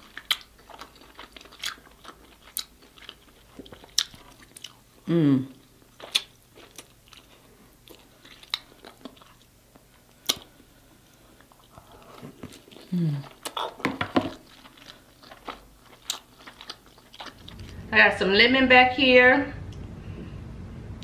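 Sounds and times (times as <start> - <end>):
wet chewing: 0.0 - 4.9, 5.5 - 17.8
person humming: 5.1 - 5.6, 12.9 - 13.2
lip smacks: 10.2 - 10.5.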